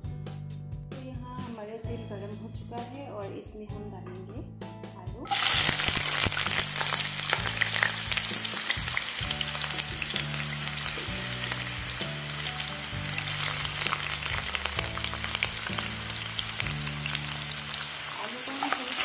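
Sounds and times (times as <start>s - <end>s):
wedges sizzling in hot oil: 5.3s - 19.0s.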